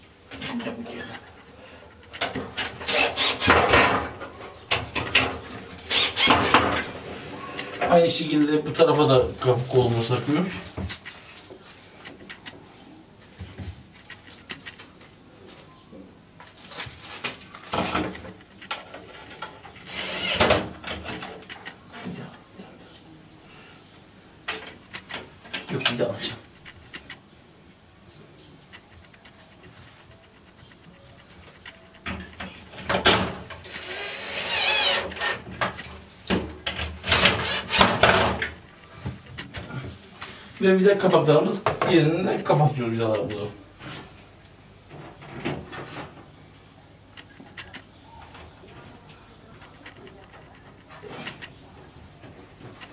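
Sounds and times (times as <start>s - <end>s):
cordless drill driving screws: 2.8s - 3.6s, 5.9s - 6.7s, 19.8s - 20.6s, 33.6s - 35.4s, 37.0s - 38.2s.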